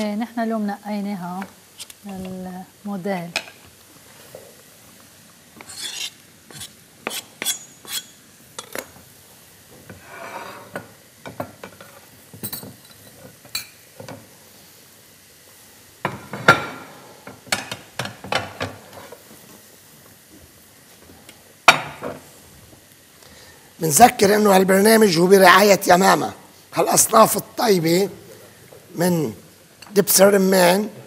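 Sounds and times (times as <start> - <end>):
wooden spoon scraping frying pan: 9.9 - 10.8.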